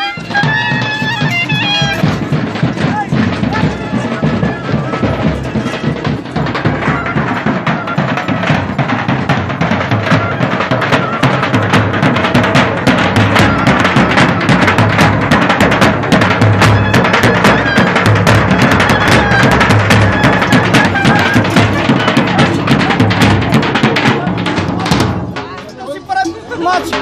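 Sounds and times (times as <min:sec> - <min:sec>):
clarinets playing melody: 0:00.0 - 0:02.3, 0:16.8 - 0:22.5
bass drums beaten fast: 0:00.2 - 0:25.8.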